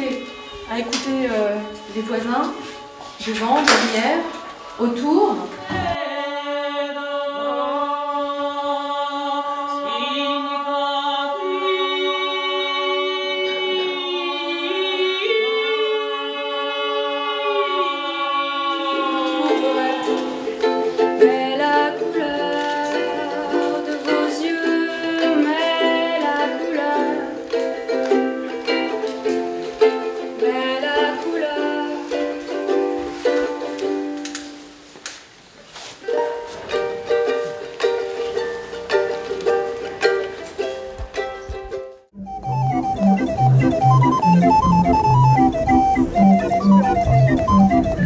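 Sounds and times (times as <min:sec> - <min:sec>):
group of voices singing: 0:05.5 - 0:32.3, 0:42.4 - 0:48.0
strummed ukulele: 0:19.0 - 0:34.9, 0:36.0 - 0:48.0.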